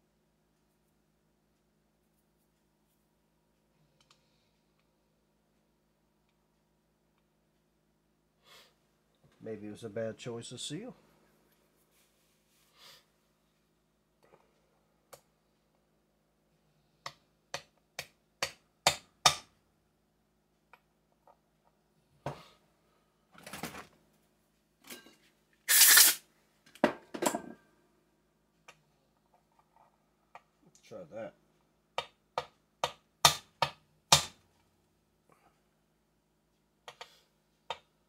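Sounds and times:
metal tools clattering and scraping: 24.8s - 25.3s.

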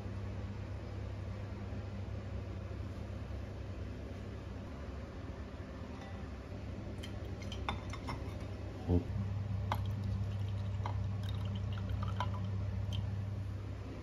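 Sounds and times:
steady low hum: 0.0s - 14.0s
liquid trickling and dripping: 7.0s - 8.3s, 9.6s - 13.3s.

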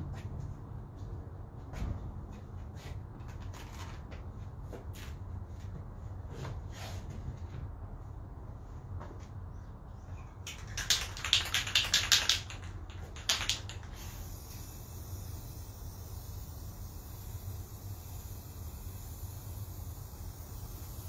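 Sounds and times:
spray can ball rattling: 10.4s - 21.0s
spray can hissing: 10.5s - 21.0s.

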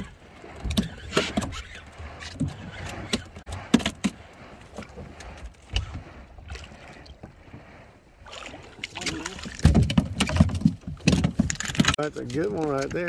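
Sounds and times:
water lapping against boat: 0.0s - 13.0s
sharp knocks and clicks: 9.5s - 13.0s.

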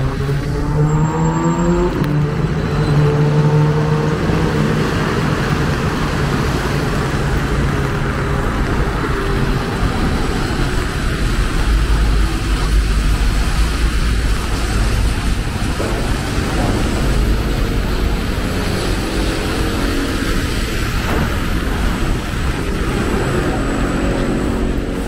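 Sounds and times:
traffic hiss on wet road: 3.2s - 25.0s
low rumble: 7.4s - 25.0s.

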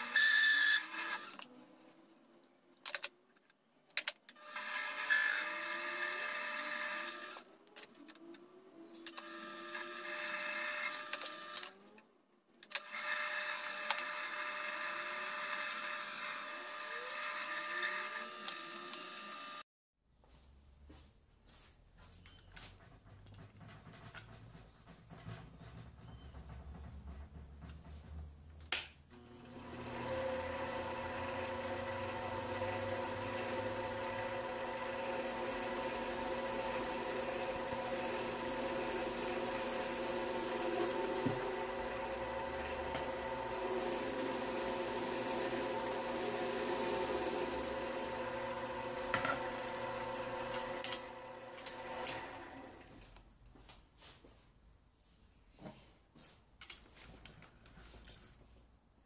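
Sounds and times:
lathe motor whine: 12.9s - 19.6s, 29.2s - 52.9s
cutting tool hiss: 34.9s - 41.9s, 43.4s - 48.2s.

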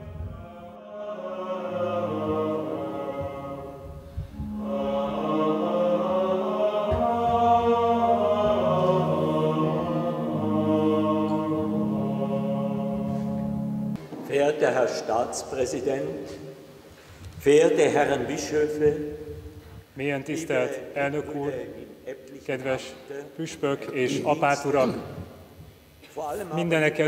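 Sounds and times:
choir singing chant: 0.0s - 13.9s.

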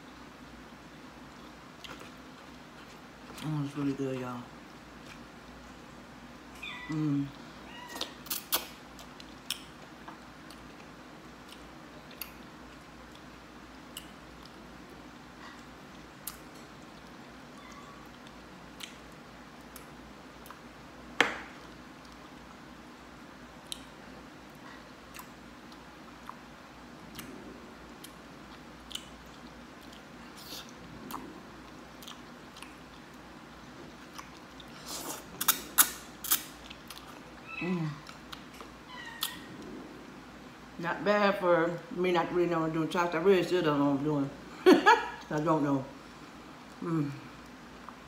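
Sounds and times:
person chewing: 1.3s - 3.5s, 8.0s - 17.2s, 18.0s - 20.7s, 23.6s - 39.7s
person humming: 37.6s - 38.1s, 46.8s - 47.3s.

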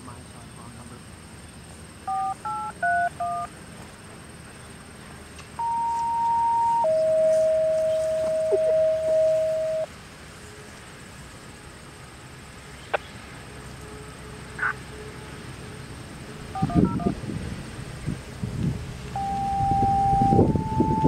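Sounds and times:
long steady paging tone: 2.0s - 3.6s, 5.6s - 9.9s, 16.5s - 17.2s, 19.1s - 21.0s
short two-pitch beeps: 5.6s - 9.9s, 16.6s - 17.1s, 19.2s - 21.0s.

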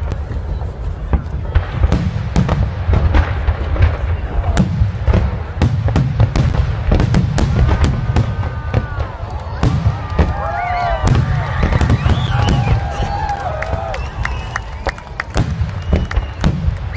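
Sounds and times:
firework booms and crackles: 0.0s - 16.9s.

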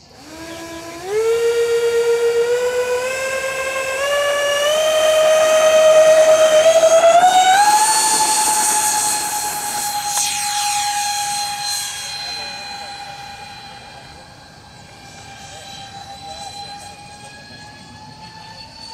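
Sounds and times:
electric ducted fans whining: 0.0s - 18.9s.

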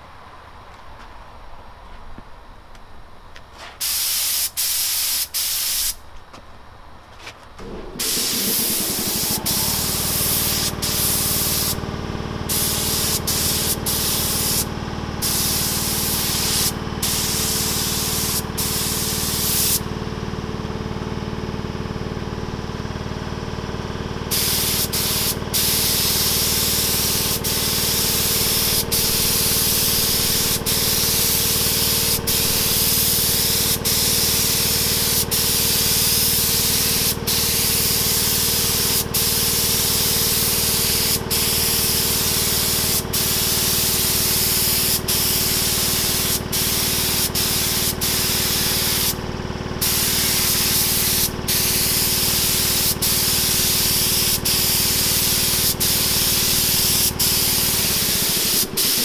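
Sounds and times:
spray gun hissing: 7.6s - 11.9s, 12.5s - 19.9s, 24.3s - 49.2s, 49.8s - 59.0s.

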